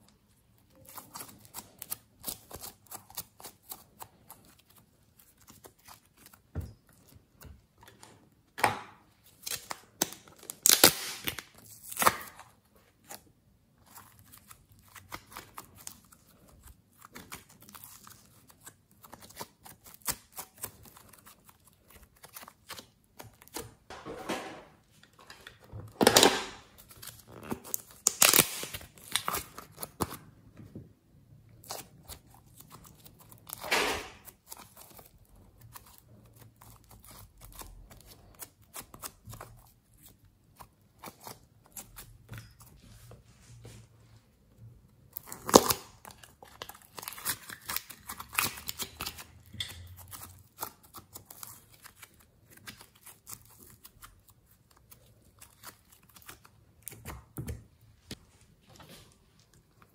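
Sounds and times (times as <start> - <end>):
slime squelching and crackling: 9.0 - 23.6, 25.6 - 30.4, 31.4 - 42.8, 44.8 - 57.5.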